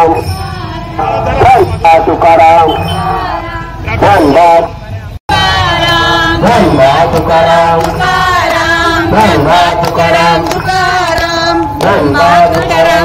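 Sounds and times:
group chanting devotional song: 2.7 - 4.0, 5.3 - 13.0
hand clapping: 7.1 - 12.7.

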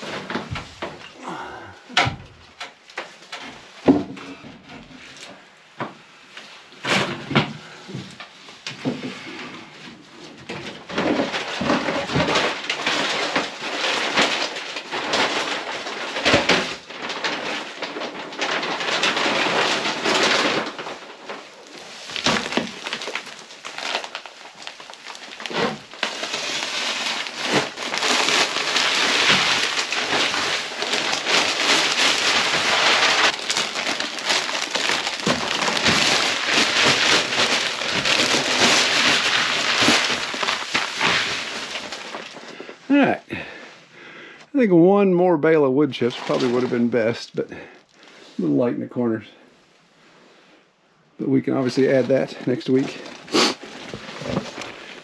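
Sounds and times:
plastic sheet rustling and crinkling: 0.0 - 50.4, 51.2 - 55.0
wood chips pouring onto plastic: 10.5 - 43.7, 46.0 - 48.2, 51.4 - 55.0.

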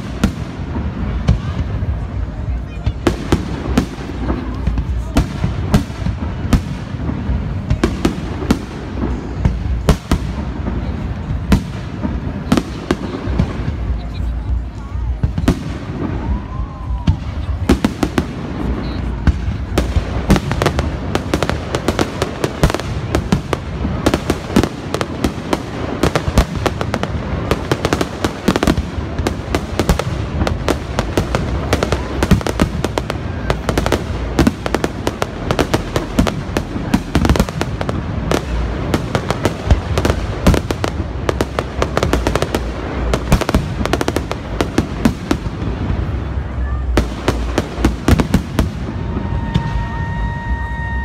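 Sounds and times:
fireworks bangs and crackles: 0.0 - 51.0.

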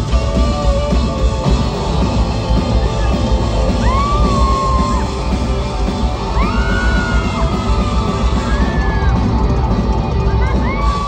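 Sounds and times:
live rock band playing: 0.0 - 11.0
audience screaming: 2.8 - 11.0.

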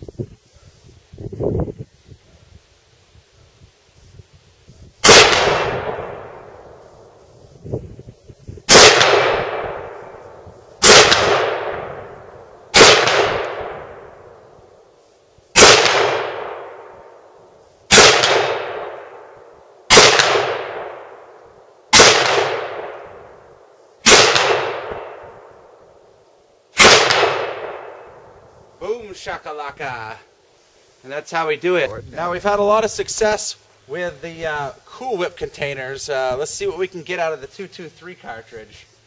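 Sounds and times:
rifle shots with echo: 5.0 - 6.8, 8.7 - 10.2, 10.8 - 14.4, 15.6 - 17.2, 17.9 - 25.9, 26.8 - 28.2.

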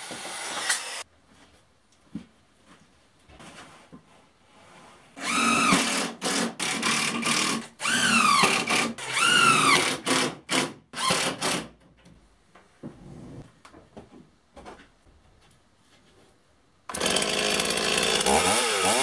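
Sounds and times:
drill-driver driving screws: 0.1 - 1.0, 5.2 - 11.6.

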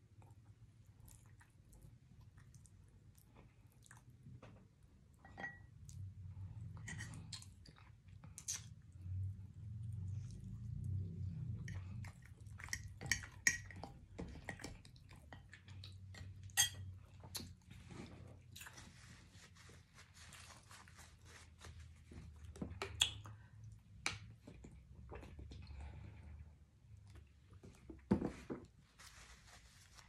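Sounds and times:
person chewing: 7.0 - 8.8.

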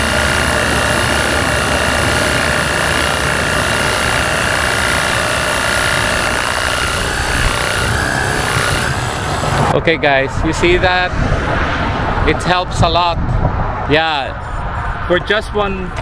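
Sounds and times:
pressure washer pump droning: 0.0 - 9.8.

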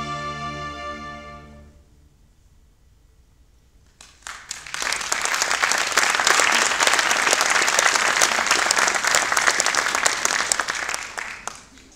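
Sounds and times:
audience applause: 4.0 - 11.9.

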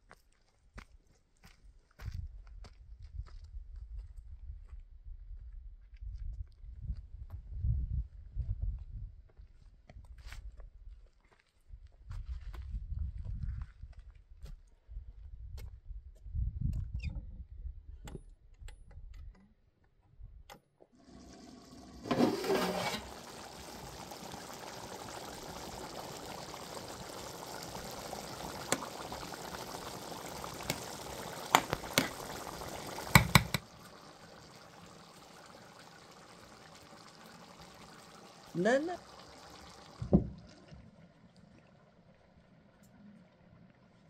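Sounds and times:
pot of rice hissing: 21.1 - 33.9
metal skimmer stirring rice: 22.0 - 23.3.

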